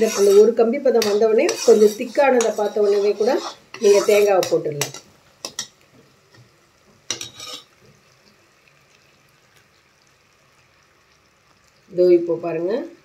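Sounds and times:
metal ladle scraping a pan: 0.0 - 5.7, 7.1 - 7.8
syrup bubbling: 5.6 - 12.2.

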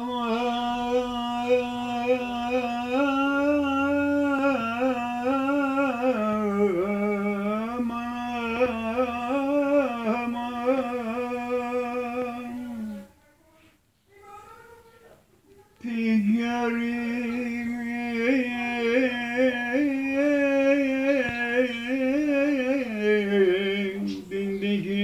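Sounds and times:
elderly man singing unaccompanied: 0.0 - 13.2, 15.8 - 25.0.

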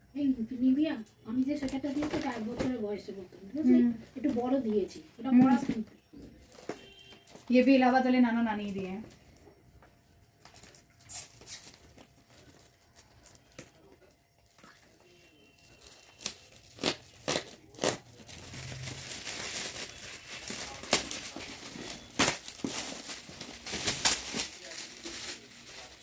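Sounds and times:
paper crinkling and rustling: 8.6 - 26.0
wrapping paper ripping: 14.5 - 26.0.

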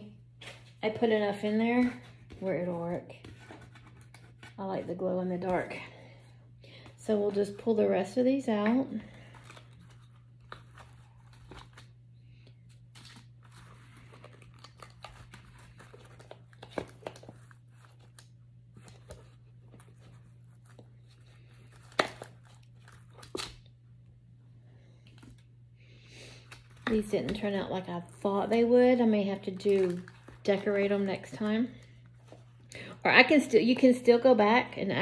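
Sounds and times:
crinkling and tearing paper: 12.6 - 23.6, 26.4 - 31.9.

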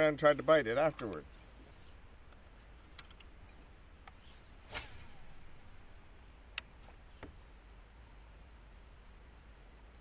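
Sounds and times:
low steady hiss: 0.0 - 10.0
brief swish: 4.6 - 5.5.

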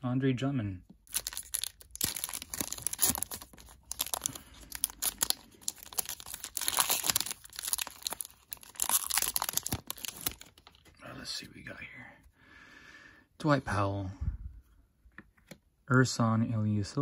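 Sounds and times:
foil wrapper tearing and crinkling: 1.0 - 10.8.

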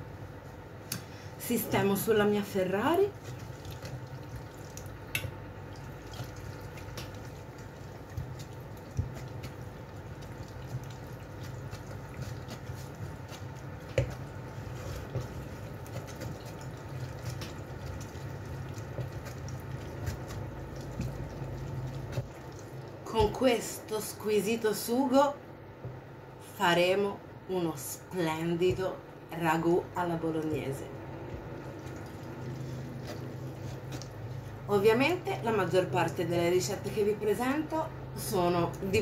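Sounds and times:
steady low hum: 0.0 - 39.0
wet squelching of tomato pulp: 2.5 - 23.4, 31.1 - 34.7.

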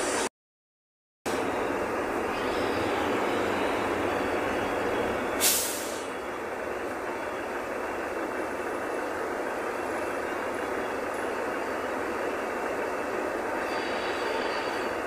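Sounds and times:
bus engine and road noise: 1.3 - 15.0
air brakes hiss: 5.4 - 6.2.

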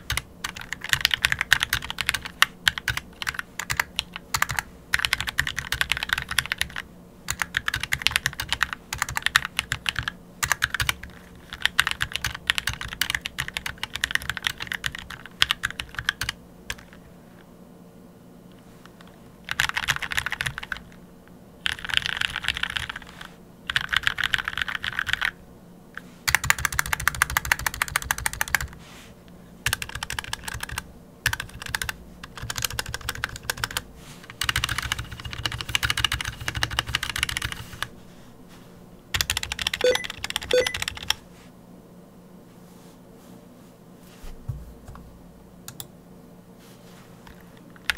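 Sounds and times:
mechanical keyboard typing: 0.0 - 17.0, 19.4 - 20.9, 21.6 - 25.4, 26.3 - 28.7, 29.6 - 33.8, 34.4 - 37.9, 39.1 - 41.2.

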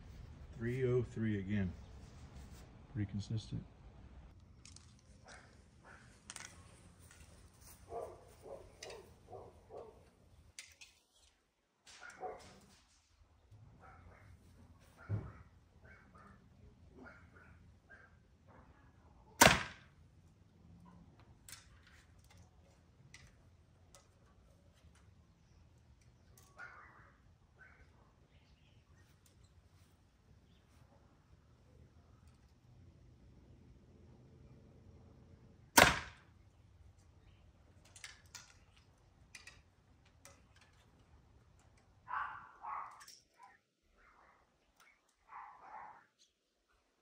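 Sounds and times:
bow shot crack: 19.4 - 19.9, 35.8 - 36.3.

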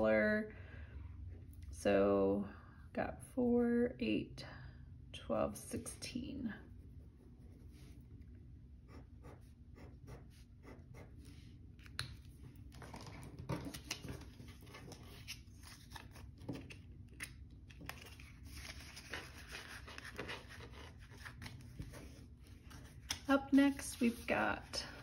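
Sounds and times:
pen marking paper: 8.9 - 11.4
paper and plastic rustling: 12.7 - 25.0.

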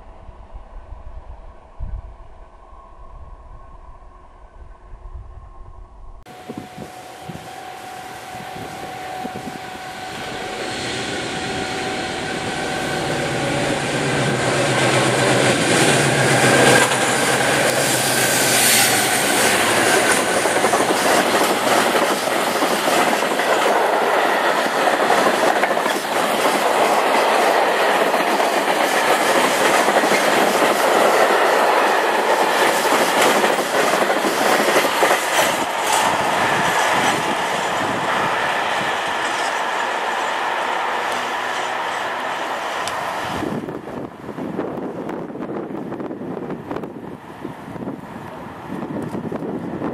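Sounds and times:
diesel locomotive engines: 6.2 - 49.9
wagons clickety-clack over rail joints: 19.5 - 31.4, 32.2 - 36.2.

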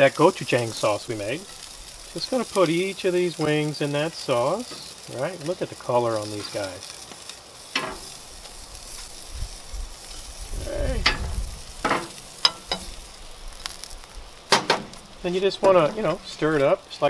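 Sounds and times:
chicken wings sizzling in a pan: 0.0 - 17.0
tongs clacking against a pan: 11.9 - 13.0.

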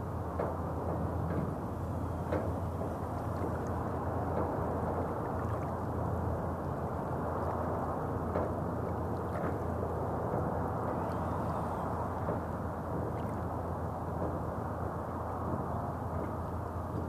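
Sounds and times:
road traffic hum: 10.6 - 12.8.

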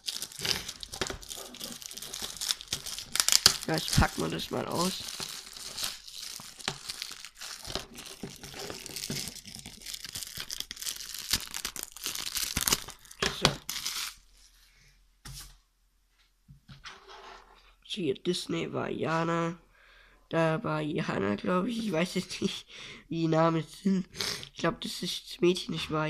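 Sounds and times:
plastic wrap crinkling: 0.0 - 14.6.

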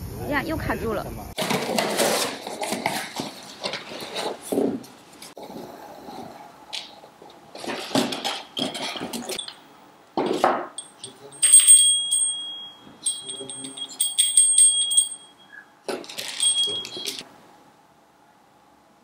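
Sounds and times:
small metal bell ringing: 9.4 - 9.6, 10.8 - 17.2.

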